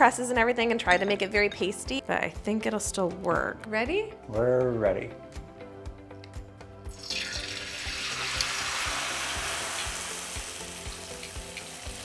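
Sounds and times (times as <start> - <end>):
background music with steady beat: 0.0 - 12.0
rice paper sizzling in hot oil: 6.9 - 12.0.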